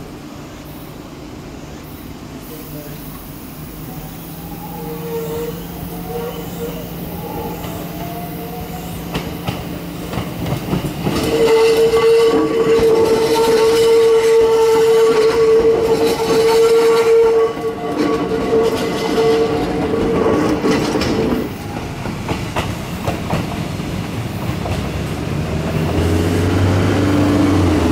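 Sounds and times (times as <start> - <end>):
steady warning tone: 3.1 - 18.8
train wheels clattering on rails: 4.6 - 27.9.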